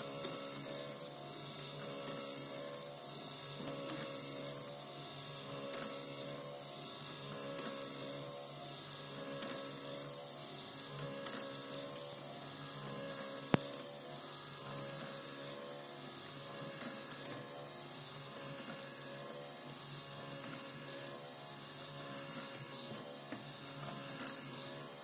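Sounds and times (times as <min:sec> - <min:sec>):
small motor whirring: 0:00.0 - 0:25.0.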